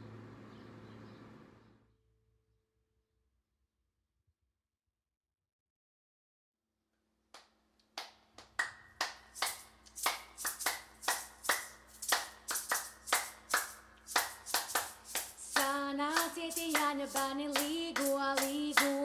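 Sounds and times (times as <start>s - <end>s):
hands clapping a rhythm: 7.4s - 19.0s.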